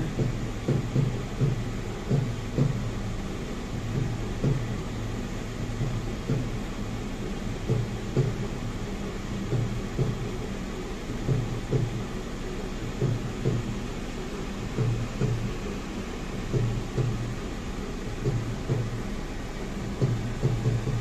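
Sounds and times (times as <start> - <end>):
muffled dhol drum beats: 0.0 - 3.1, 3.8 - 4.9, 11.2 - 12.1, 16.4 - 17.5, 18.2 - 19.1, 19.9 - 21.0
low car cabin hum: 0.0 - 21.0.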